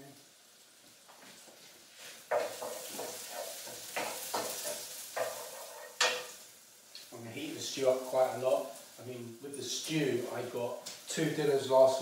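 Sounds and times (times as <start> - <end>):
garlic sizzling in frying pan: 0.0 - 12.0
scraping stirring strokes: 1.6 - 6.4.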